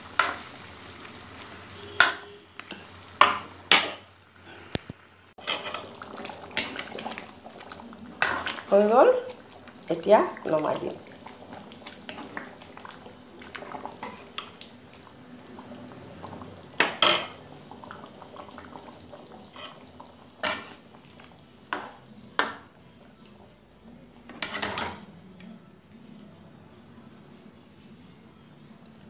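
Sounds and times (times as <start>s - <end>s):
ladle scraping and stirring in wok: 5.4s - 9.0s, 11.0s - 14.6s, 24.3s - 25.1s.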